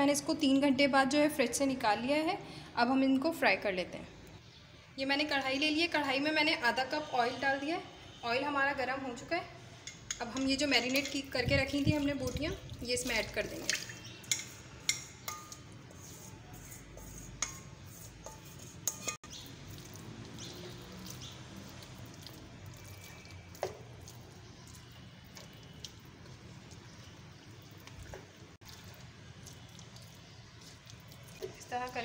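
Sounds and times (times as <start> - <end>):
spatula clinking against pan: 14.2 - 15.8, 16.6 - 19.3.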